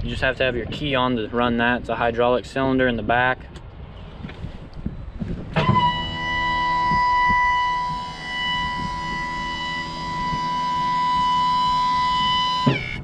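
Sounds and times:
low hum: 3.9s - 13.0s
hydraulic pump whining: 4.2s - 13.0s.

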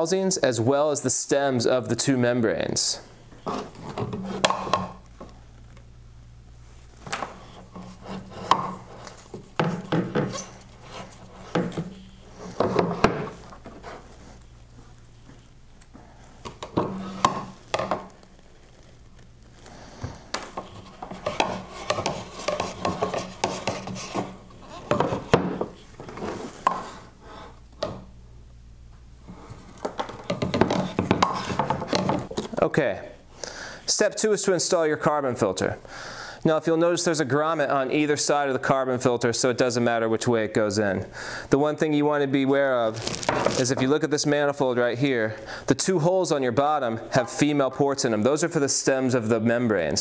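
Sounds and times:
plastic parts rubbing and scraping: 3.3s - 4.9s, 6.8s - 15.5s, 16.4s - 27.6s, 29.5s - 32.6s, 42.9s - 43.9s.

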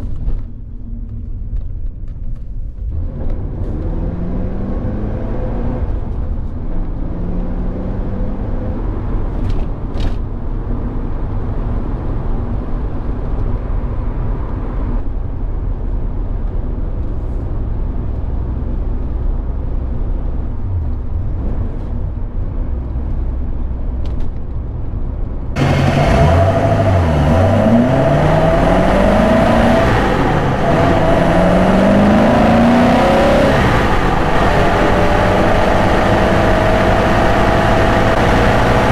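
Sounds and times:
road noise: 0.0s - 38.9s
car engine revving: 2.9s - 6.2s, 25.6s - 38.9s.

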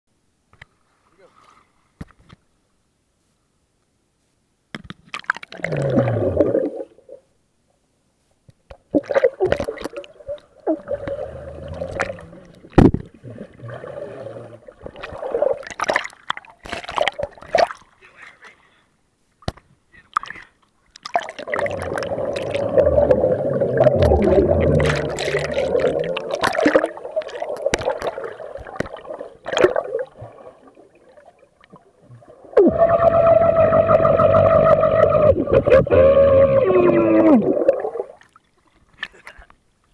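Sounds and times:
muffled water sloshing and splashing: 8.9s - 17.9s, 20.9s - 35.9s.

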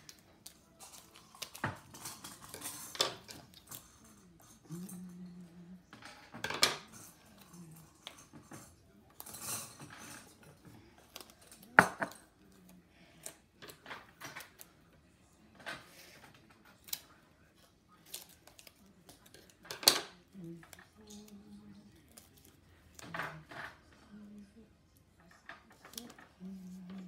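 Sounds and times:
paper and tape rustling: 0.0s - 4.4s.

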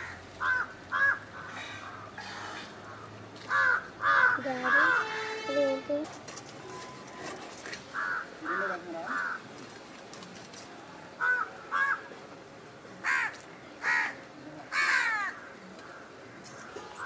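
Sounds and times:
crows cawing: 0.0s - 5.1s, 7.9s - 9.5s, 11.2s - 12.1s, 13.0s - 16.1s.

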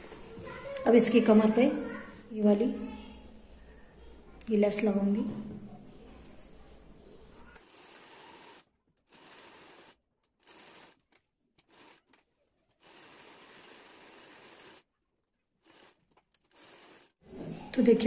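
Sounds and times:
sewing machine running: 7.6s - 12.2s, 12.8s - 14.9s, 15.6s - 17.3s.

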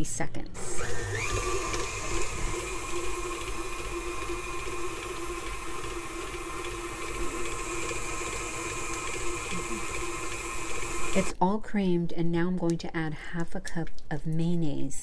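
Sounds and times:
stand mixer motor whine: 0.6s - 11.4s.

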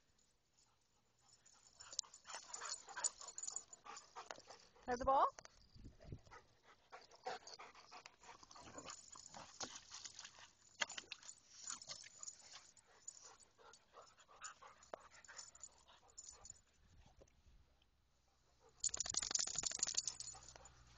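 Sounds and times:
dogs panting: 0.6s - 5.3s, 6.0s - 10.8s, 11.6s - 16.6s, 19.8s - 20.9s
scattered small noises: 18.8s - 20.9s.

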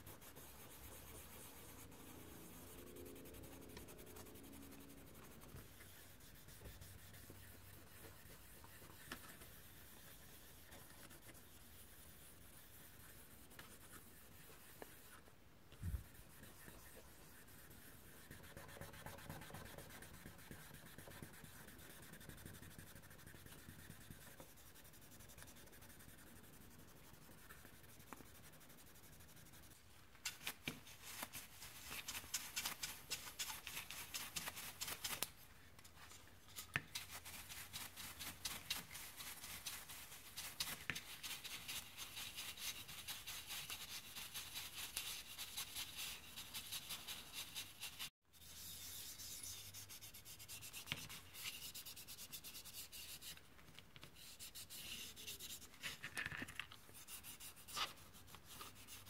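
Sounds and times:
cotton pad rubbing plastic: 0.0s - 14.9s.

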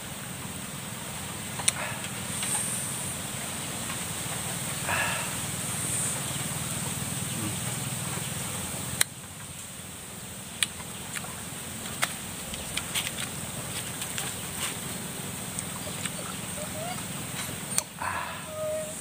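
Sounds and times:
mouth clicks and smacks: 10.6s - 14.4s.

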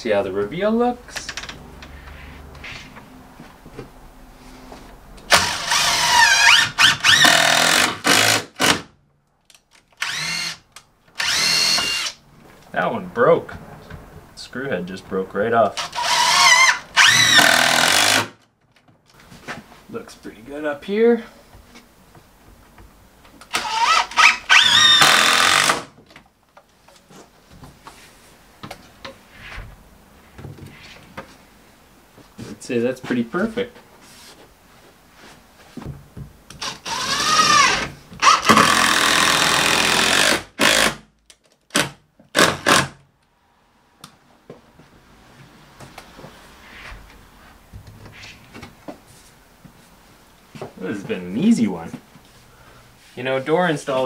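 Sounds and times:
cordless drill driving screws: 5.3s - 8.8s, 10.0s - 10.6s, 11.2s - 12.2s, 15.8s - 18.3s, 23.5s - 25.9s, 36.6s - 41.0s, 41.8s - 43.0s
person talking: 32.4s - 33.8s, 50.7s - 52.0s.

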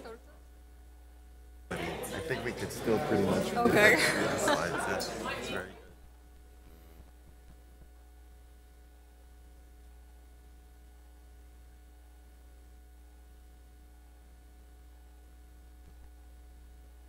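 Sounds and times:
faint steady tones: 0.0s - 17.0s
low electrical hum: 0.0s - 17.0s.

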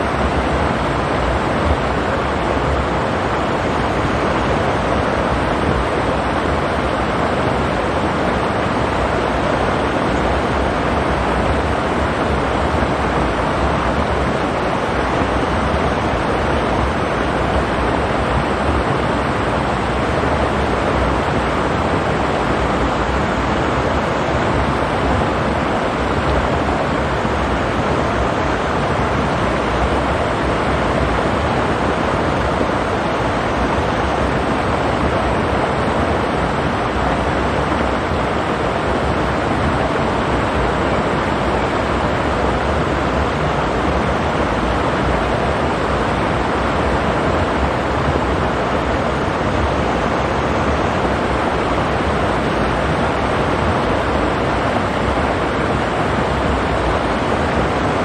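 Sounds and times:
stream water rushing over rocks: 0.0s - 58.0s.

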